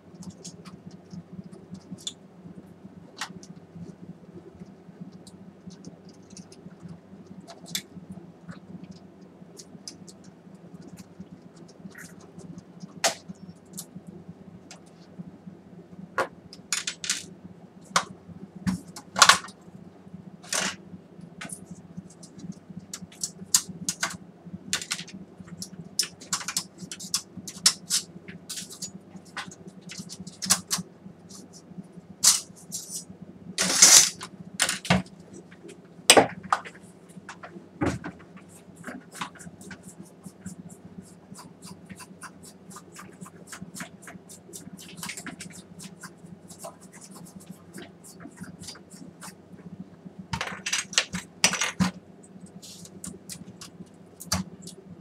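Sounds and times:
metal parts clicking and scraping: 0:33.6 - 0:34.8.

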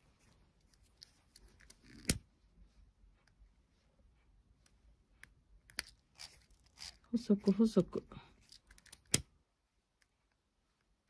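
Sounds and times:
hands handling cord: 0:00.0 - 0:02.3, 0:08.3 - 0:09.3.

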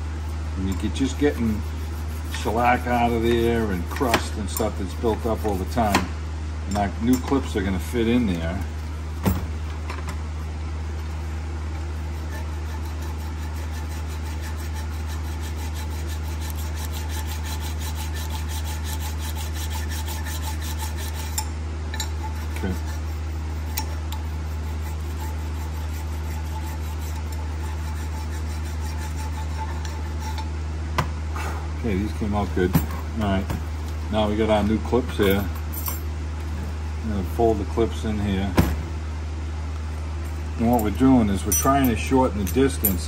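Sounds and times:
steady low hum: 0:00.0 - 0:43.0
metal file rasping on steel: 0:00.7 - 0:06.0, 0:12.0 - 0:30.5.

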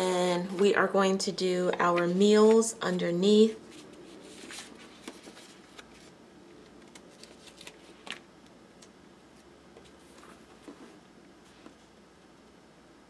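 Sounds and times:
paper crackle: 0:03.7 - 0:08.2.

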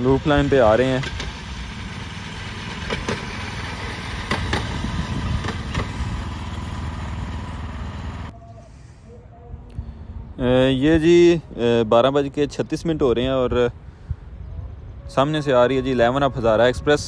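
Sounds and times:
small engine running: 0:00.0 - 0:08.3.

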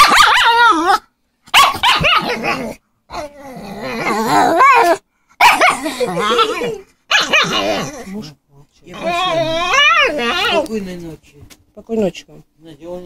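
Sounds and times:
dog grumbling calls: 0:02.2 - 0:10.7.

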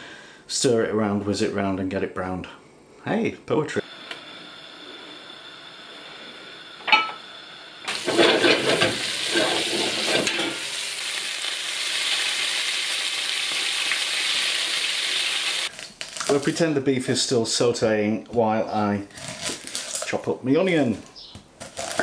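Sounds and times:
meat sizzling in a frying pan: 0:07.8 - 0:16.4
spatula scraping a pan: 0:07.9 - 0:10.6.

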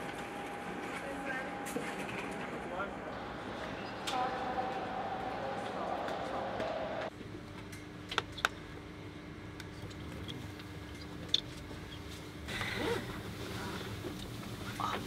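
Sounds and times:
train carriage hum: 0:00.0 - 0:08.1, 0:12.2 - 0:15.0.

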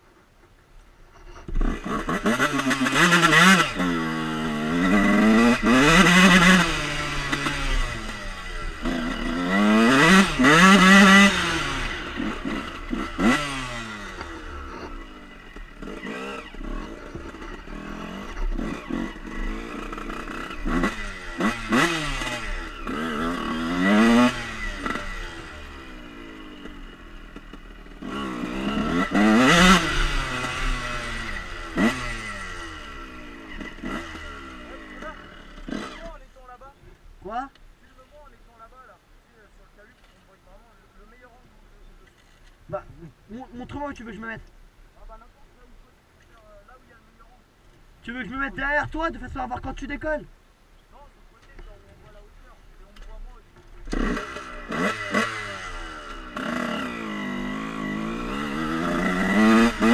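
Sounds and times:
dirt bike engine accelerating: 0:01.1 - 0:45.7, 0:50.9 - 0:59.9.

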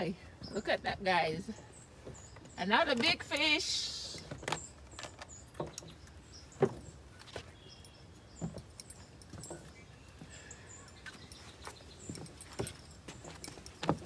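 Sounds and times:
footsteps on wooden boards: 0:01.9 - 0:14.0
faint bird chirps: 0:04.1 - 0:13.0.

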